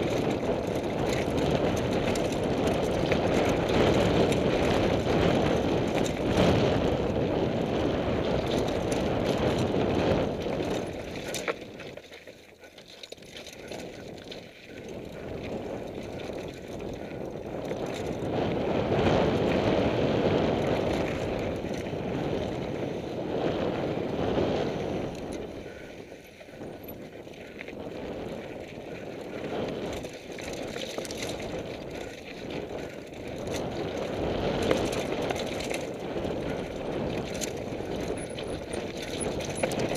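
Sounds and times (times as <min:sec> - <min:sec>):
wind rushing over microphone: 0:00.0 - 0:11.4, 0:13.7 - 0:39.9
bike knocks and rattles: 0:00.0 - 0:19.7, 0:29.4 - 0:39.9.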